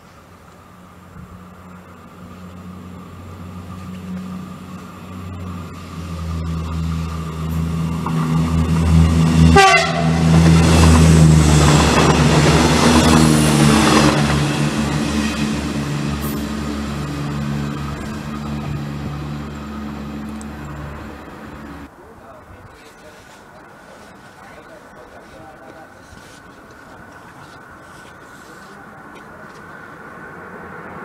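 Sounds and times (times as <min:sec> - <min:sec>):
electric train passing: 0:00.2 - 0:22.0.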